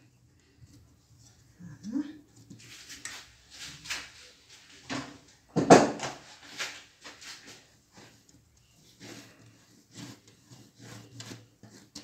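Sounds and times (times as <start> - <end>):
loud knock: 5.6 - 6.1.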